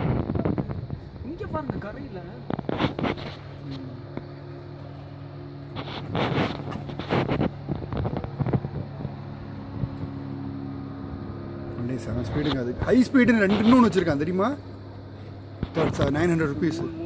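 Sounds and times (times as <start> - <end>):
wind buffeting microphone: 0.0 - 3.3, 6.1 - 10.4
speedboat engine humming: 0.0 - 17.0.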